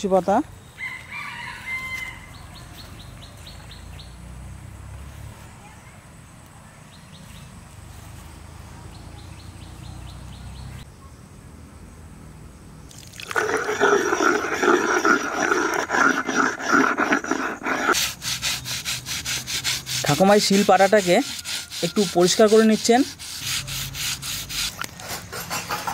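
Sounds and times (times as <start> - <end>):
straw brushing strokes: 13.2 - 25.2
stone rasping on stone slab: 13.4 - 25.9.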